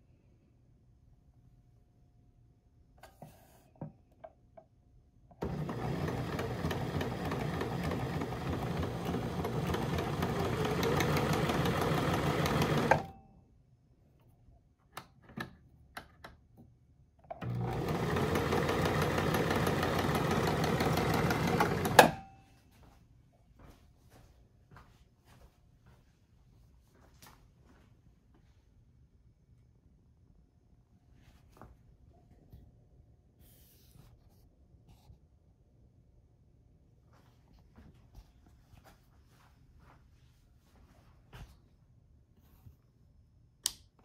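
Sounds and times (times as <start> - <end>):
sewing machine running: 5.4 - 13.1, 17.4 - 22.2.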